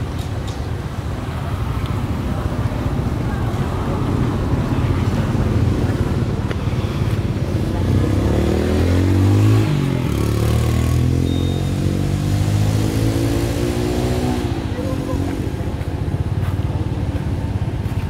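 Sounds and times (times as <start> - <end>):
vehicle engine revving: 7.6 - 15.7.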